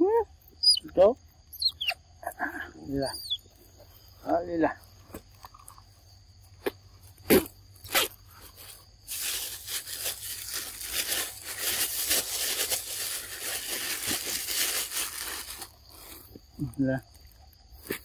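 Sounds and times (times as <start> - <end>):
high insect drone: 0.0 - 18.0
crinkling rustle: 7.8 - 18.0.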